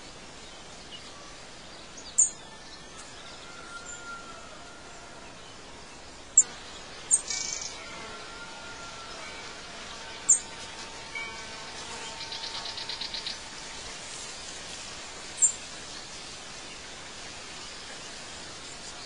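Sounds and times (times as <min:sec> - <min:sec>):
birdsong chirps and trill: 0:00.0 - 0:14.6
steady background hiss: 0:00.0 - 0:19.0.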